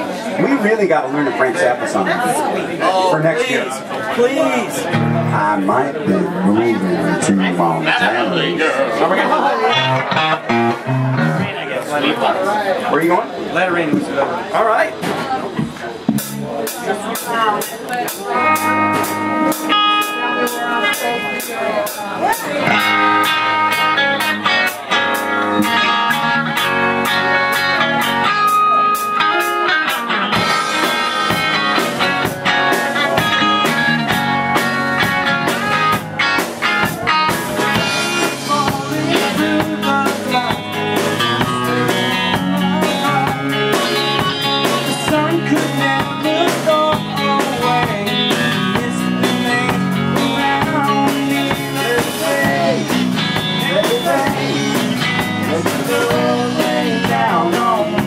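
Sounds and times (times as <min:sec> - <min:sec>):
acoustic guitar: 0:04.1 - 0:11.7, 0:15.0 - 0:58.0
electric guitar: 0:04.7 - 0:08.7, 0:09.4 - 0:12.1, 0:17.9 - 0:58.0
drum kit: 0:09.7 - 0:11.6, 0:15.0 - 0:58.0.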